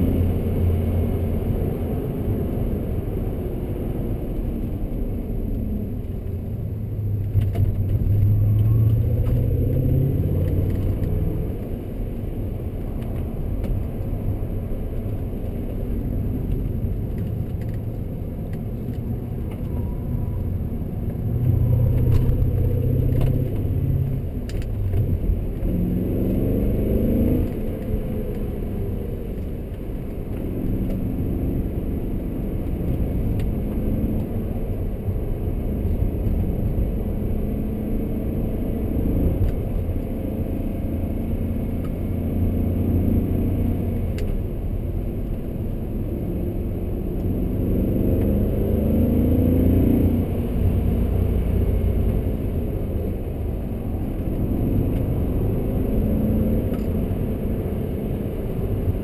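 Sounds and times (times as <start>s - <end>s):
car engine under way: 0.0s - 59.0s
road and tyre noise: 0.0s - 59.0s.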